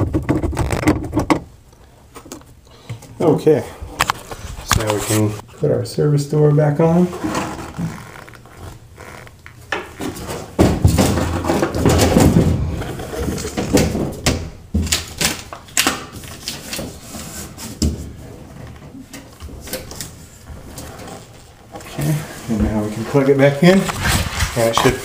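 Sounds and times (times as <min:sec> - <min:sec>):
metal door knocks and rattles: 0:10.5 - 0:12.8.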